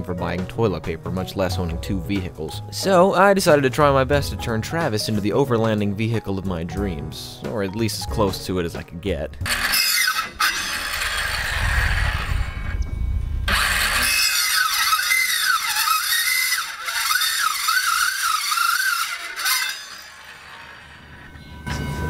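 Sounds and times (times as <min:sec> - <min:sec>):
circular saw running unevenly: 0:09.4 - 0:12.7, 0:13.5 - 0:22.0.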